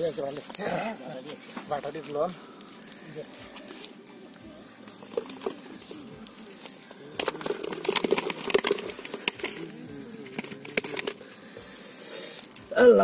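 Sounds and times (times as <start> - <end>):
wet net clicking and rustling: 6.7 - 9.7.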